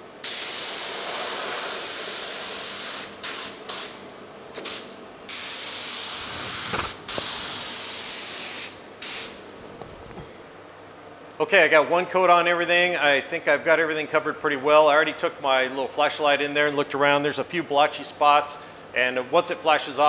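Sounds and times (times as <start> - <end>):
spray gun hissing: 0.2 - 4.0, 4.6 - 9.4.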